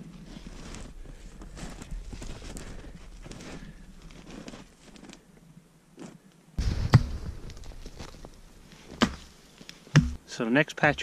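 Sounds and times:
snowshoe footsteps crunching snow: 0.0s - 5.2s, 6.0s - 9.9s
thump: 10.0s - 10.2s.

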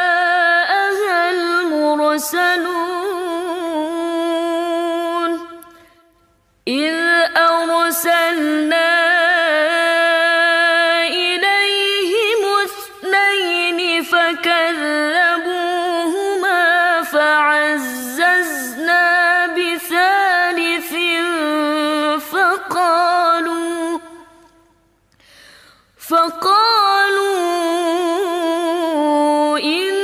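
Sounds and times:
woman chanting melodically: 0.0s - 5.8s, 6.7s - 24.4s, 26.0s - 30.0s.

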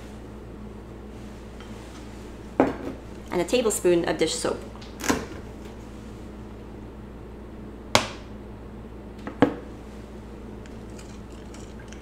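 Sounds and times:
spoon clinking glass bowl: 10.6s - 12.0s.

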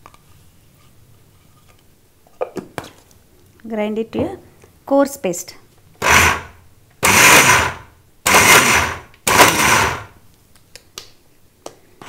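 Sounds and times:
mixer grinder motor whirring: 6.0s - 10.2s.

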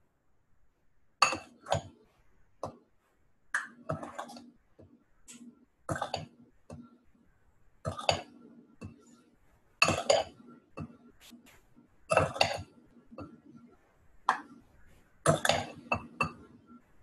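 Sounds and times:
measuring cups and bowls clinking: 1.2s - 2.0s, 3.6s - 4.5s, 7.8s - 9.2s, 9.8s - 11.0s, 12.1s - 13.4s, 15.3s - 16.6s.

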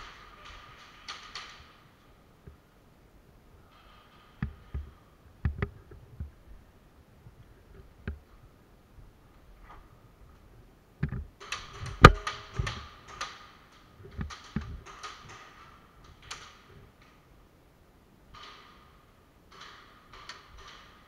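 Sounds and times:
pellets striking wooden walls: 11.4s - 16.3s.

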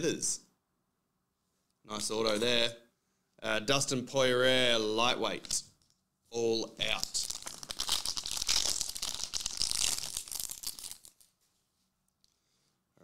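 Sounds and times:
foil wrapper tearing and crinkling: 6.9s - 11.3s.

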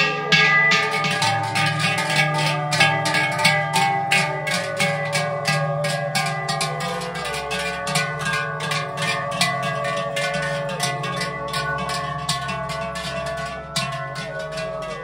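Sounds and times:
cowbells clanging: 0.0s - 15.0s
zither folk music: 0.0s - 15.0s.

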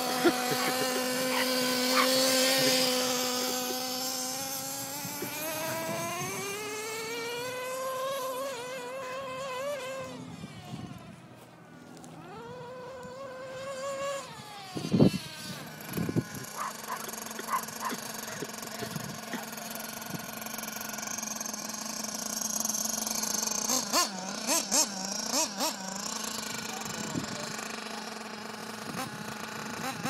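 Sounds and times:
small engine revving: 0.0s - 30.0s
small dog yapping: 1.3s - 2.3s, 16.6s - 18.5s.

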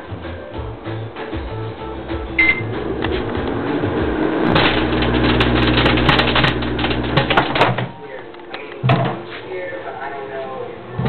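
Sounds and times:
microwave oven humming: 1.9s - 7.8s
short beep: 2.4s - 2.7s
crackle of sparks: 4.4s - 7.7s.

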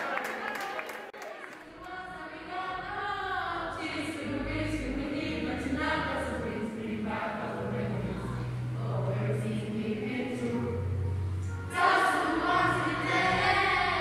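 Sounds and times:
group of voices singing: 1.8s - 14.0s.

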